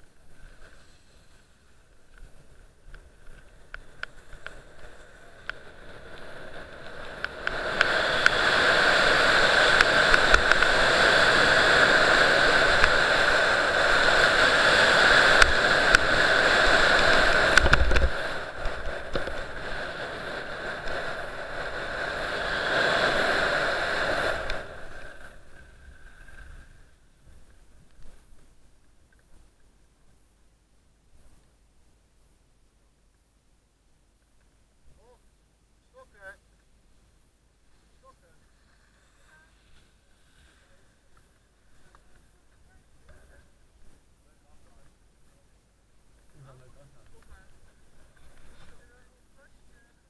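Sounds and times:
skis scraping over packed snow: 0.0 - 28.5, 37.6 - 45.4
wind on microphone: 4.0 - 27.5.

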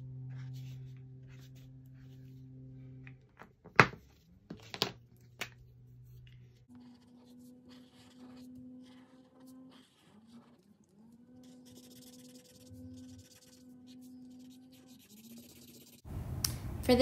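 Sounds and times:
felt-tip marker scratching on paper: 6.7 - 16.0.

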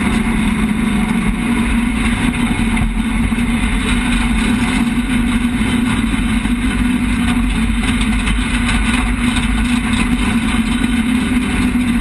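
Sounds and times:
car engine droning: 0.0 - 12.0.

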